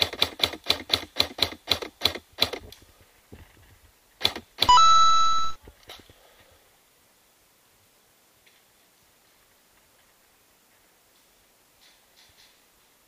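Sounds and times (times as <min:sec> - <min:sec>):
loud steady tone: 0:04.7 - 0:05.6.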